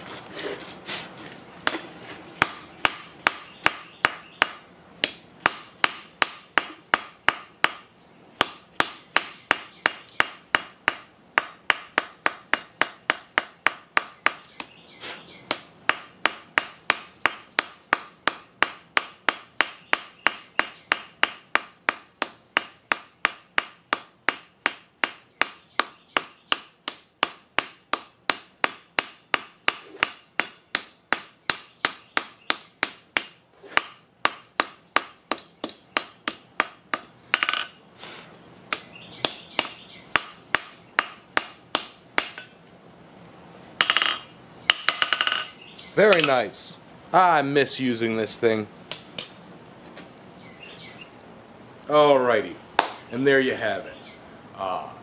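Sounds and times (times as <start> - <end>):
hammer striking hot steel: 1.7 - 14.7, 15.5 - 37.7, 38.7 - 42.6, 43.8 - 46.4.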